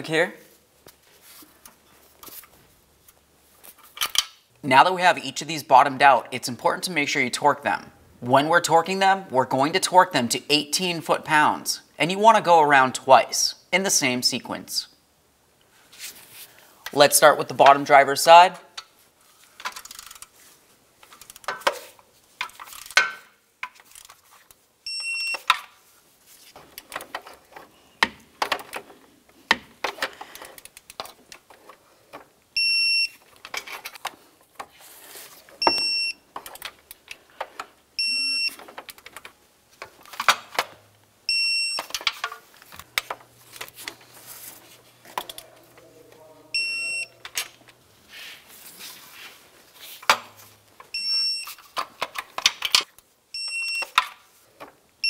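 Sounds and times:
short high beeps: 35.6s - 36.2s, 38.0s - 38.6s, 46.6s - 47.2s, 53.4s - 53.9s.

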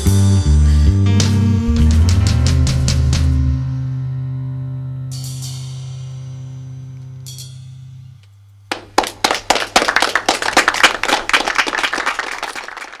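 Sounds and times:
keyboard and bass chord ringing: 0.0s - 8.7s
people clapping: 8.7s - 13.0s.

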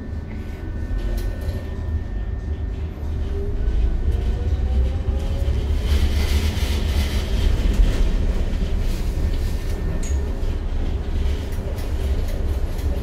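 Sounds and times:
tram wheels rumbling on rails: 0.0s - 13.0s.

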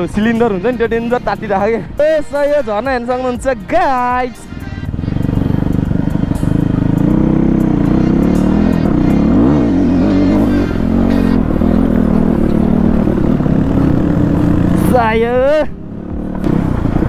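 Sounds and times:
dirt bike engine revving: 4.8s - 17.0s.

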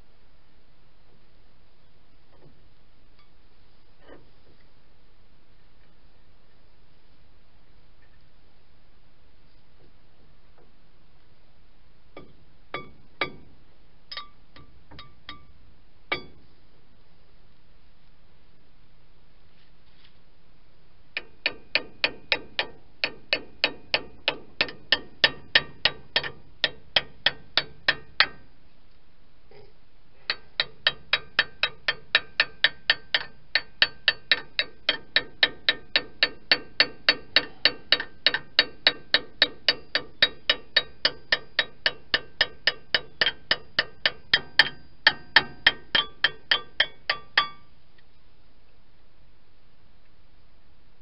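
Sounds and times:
ratchet wrench clicking: 21.2s - 28.4s, 30.3s - 47.6s.

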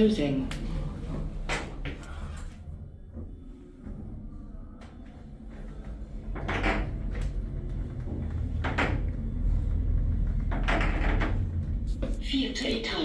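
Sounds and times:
elevator low rumble: 0.0s - 13.0s.

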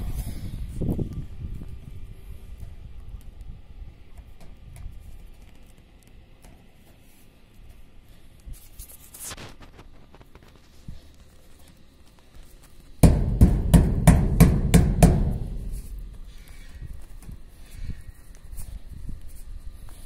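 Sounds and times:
hand rubbing foil on metal: 6.6s - 20.0s
hollow knocks on metal sheet: 13.0s - 16.4s.

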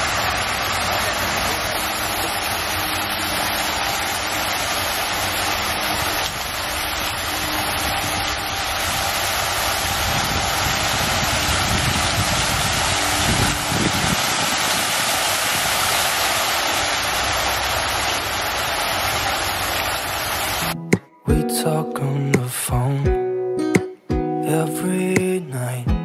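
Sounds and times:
water splashing into pond: 0.0s - 20.8s.

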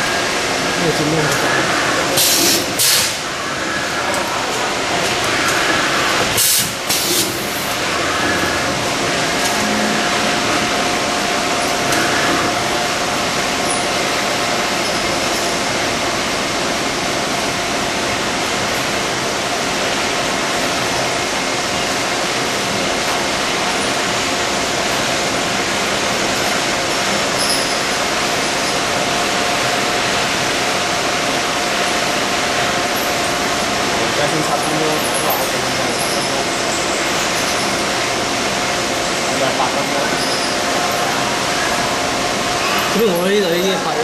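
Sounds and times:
coolant hiss: 0.0s - 9.4s.

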